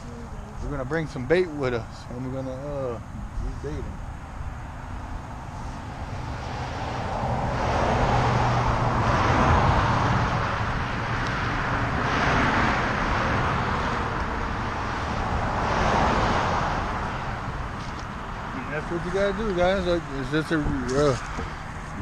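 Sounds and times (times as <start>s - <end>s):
road traffic passing: 0.0s - 22.0s.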